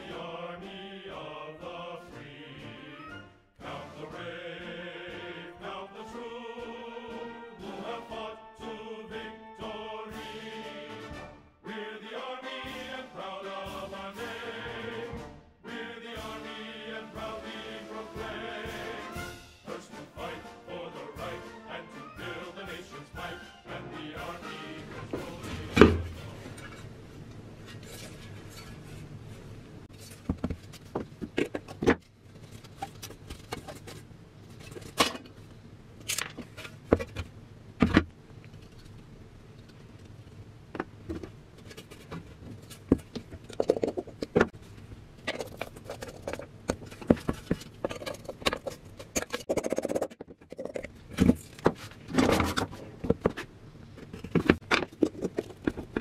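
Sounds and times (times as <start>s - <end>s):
metal helmet clinks and scrapes: 27.6s - 29.1s.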